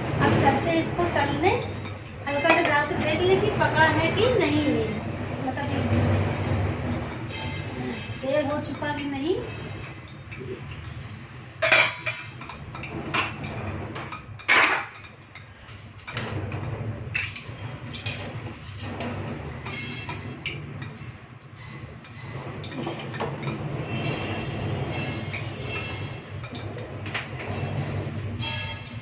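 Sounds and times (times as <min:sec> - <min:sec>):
steel plates and utensils clanking: 0:00.4 - 0:29.0.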